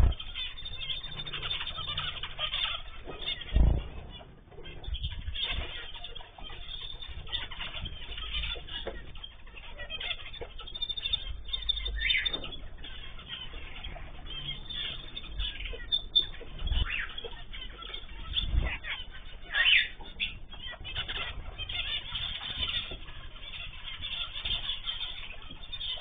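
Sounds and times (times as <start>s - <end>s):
wings fluttering: 0.0s - 8.9s
small birds chirping: 0.0s - 26.0s.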